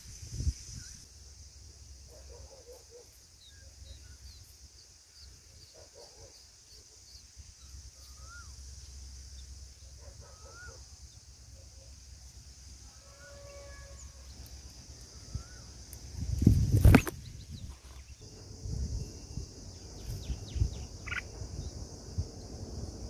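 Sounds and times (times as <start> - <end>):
steady high hiss: 0.0 - 23.0
high bird chirps: 19.9 - 21.8.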